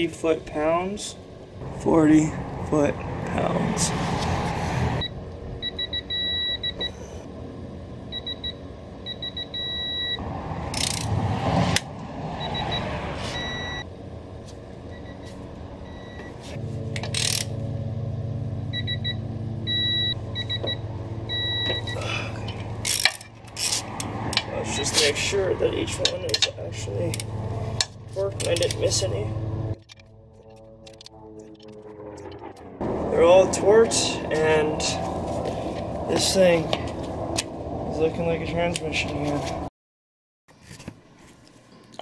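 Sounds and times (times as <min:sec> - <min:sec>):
ratchet clicking and clanking: 0:10.7 - 0:11.2, 0:16.9 - 0:17.6, 0:22.4 - 0:24.5.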